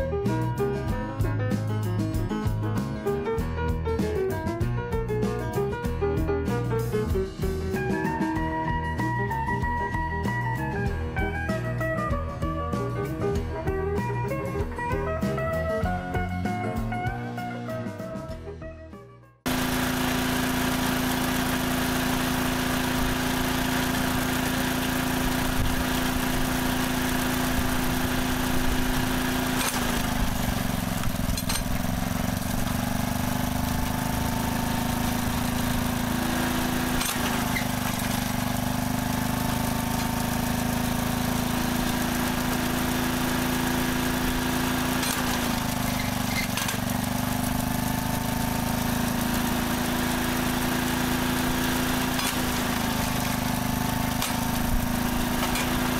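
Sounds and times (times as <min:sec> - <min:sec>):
small petrol engine humming: 0:19.5 - 0:55.9.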